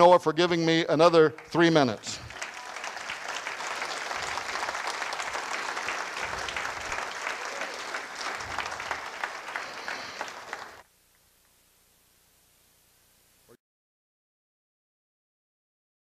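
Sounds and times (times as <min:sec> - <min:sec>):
audience applauding: 0:00.7 - 0:10.8.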